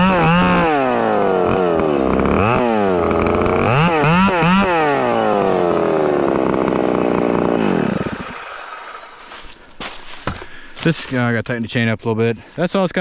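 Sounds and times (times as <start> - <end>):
chainsaw engine revving: 0.0 - 9.5.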